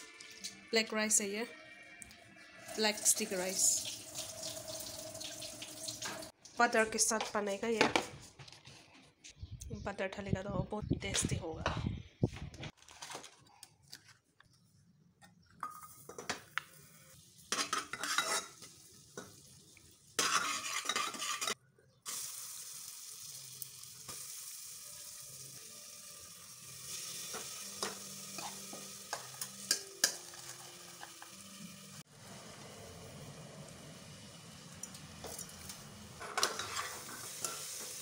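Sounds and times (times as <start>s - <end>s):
rice sizzling in butter: 2.7s - 6.4s, 16.7s - 38.0s
metal spoon scraping and clinking: 17.5s - 18.7s, 20.2s - 21.6s, 27.3s - 31.4s, 34.8s - 37.9s
spoon stirring against pot: 17.5s - 19.4s, 20.2s - 21.6s, 36.2s - 37.9s.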